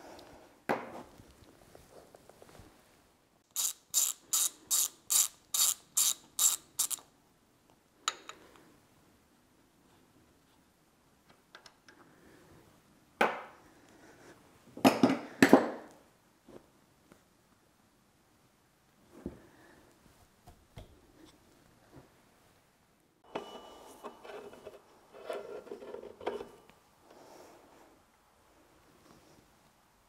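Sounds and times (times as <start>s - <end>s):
ratchet wrench clicking: 3.5s - 7.0s.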